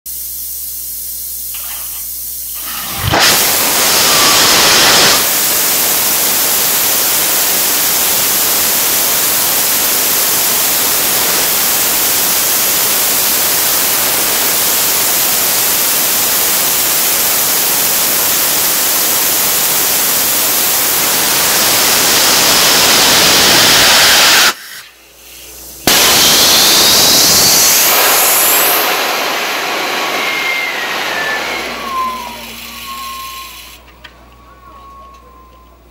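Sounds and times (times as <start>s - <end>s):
rocket steam jet hissing: 1.5s - 33.9s
rising whistle: 2.6s - 5.3s, 25.9s - 35.9s.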